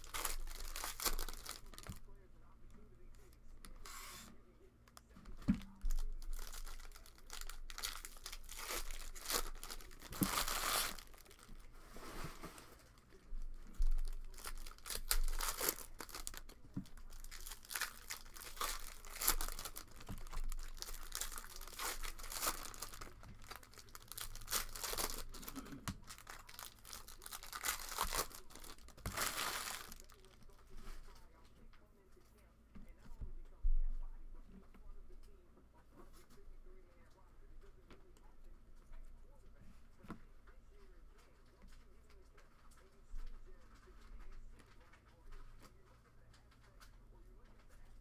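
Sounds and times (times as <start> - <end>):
foil wrappers crinkling and tearing: 0.0 - 2.0, 5.6 - 31.2.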